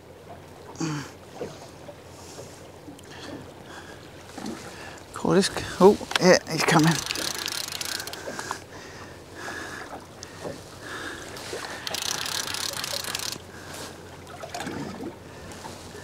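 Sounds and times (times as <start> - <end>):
water slapping boat hull: 0.0 - 16.0
wind: 0.0 - 16.0
fishing reel winding: 6.1 - 8.6, 11.6 - 13.5.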